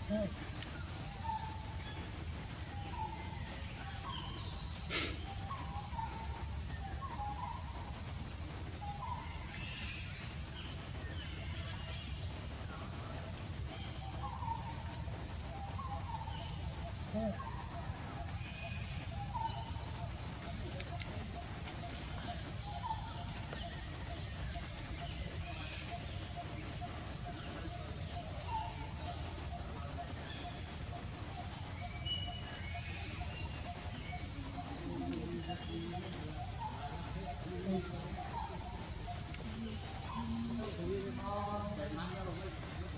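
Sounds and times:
bird-like chirps: 0:00.0 - 0:12.8, 0:13.7 - 0:42.9
short bird calls: 0:04.8 - 0:06.1.

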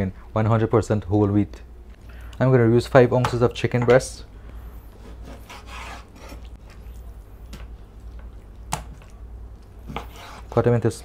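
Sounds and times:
knife cutting meat on board: 0:05.0 - 0:06.5, 0:09.9 - 0:10.6.

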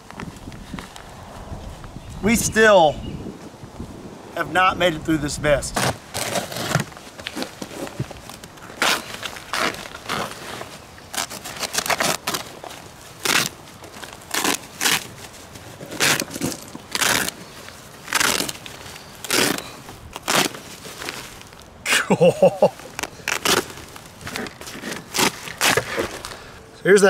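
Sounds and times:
knife slicing nylon fabric: 0:05.8 - 0:06.9, 0:08.8 - 0:13.6, 0:14.2 - 0:15.2, 0:15.8 - 0:17.4, 0:18.0 - 0:21.3, 0:24.4 - 0:26.3.

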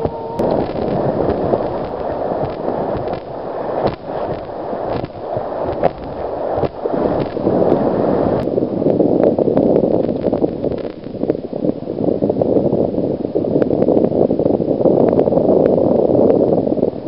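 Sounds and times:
river rapids rushing: 0:00.0 - 0:08.4.

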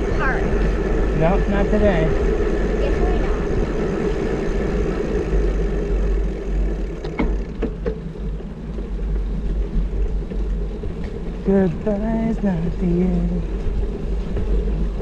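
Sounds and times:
wind rushing over microphone: 0:00.0 - 0:06.9.

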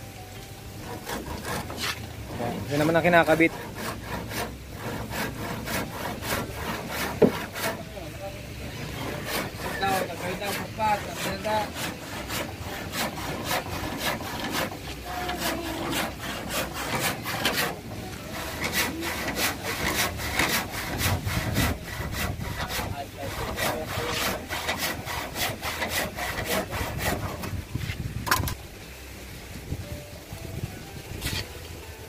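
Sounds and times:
hand saw cutting wood: 0:00.8 - 0:28.6, 0:31.2 - 0:31.5.

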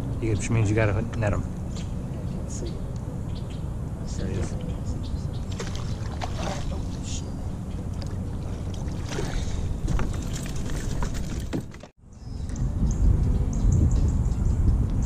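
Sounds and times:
wind on microphone: 0:01.6 - 0:15.0
fish splashing in water: 0:05.5 - 0:06.9.

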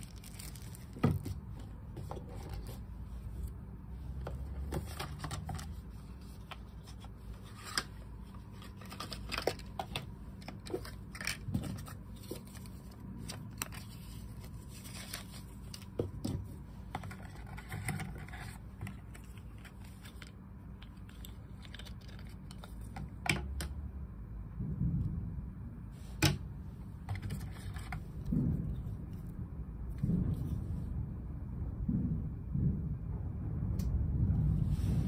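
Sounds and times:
cardboard and paper rustling: 0:00.0 - 0:23.4, 0:26.1 - 0:29.0.

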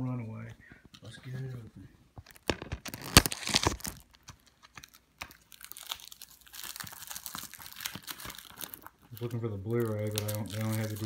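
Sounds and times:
plastic shrink-wrap tearing: 0:02.2 - 0:11.0.

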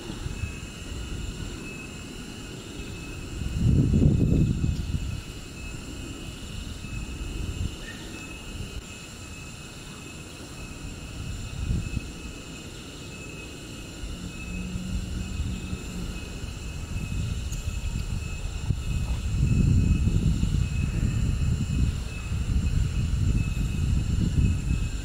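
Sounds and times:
high-pitched insect drone: 0:00.0 - 0:25.0
low uneven rumble: 0:13.8 - 0:25.0.

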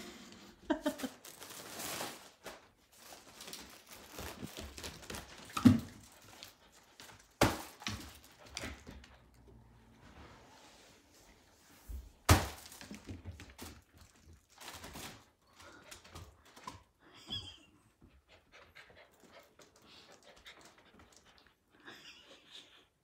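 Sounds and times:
puppy panting: 0:17.4 - 0:22.8.

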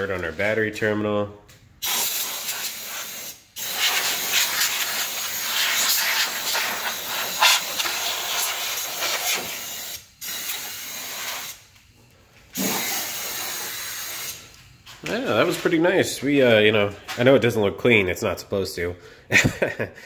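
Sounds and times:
compressed air hissing from blow gun: 0:01.8 - 0:11.6, 0:12.6 - 0:14.4.

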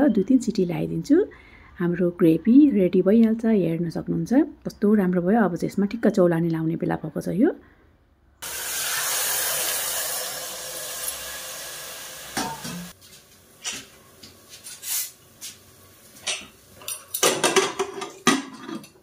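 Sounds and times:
water hissing into hot pot: 0:08.4 - 0:13.0, 0:13.6 - 0:16.2
metal lid clinking: 0:12.4 - 0:12.9.

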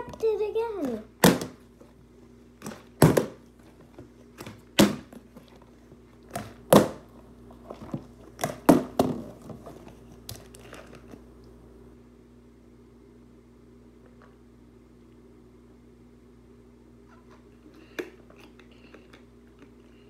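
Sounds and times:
plastic bottle landing on wooden floor: 0:01.2 - 0:01.6, 0:02.6 - 0:03.4, 0:08.4 - 0:09.4.

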